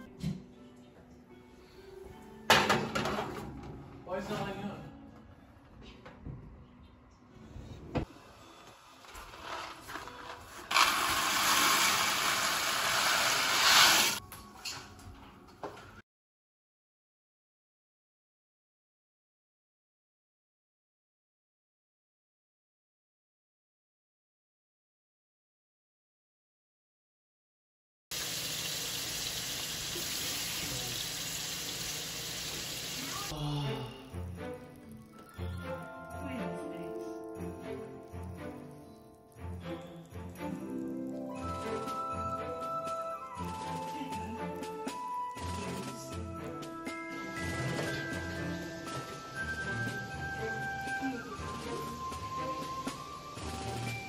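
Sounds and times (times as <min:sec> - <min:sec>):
pasta pouring into pot: 0:09.0 - 0:14.2
shrimp sizzling in butter: 0:10.7 - 0:14.2, 0:28.2 - 0:33.3.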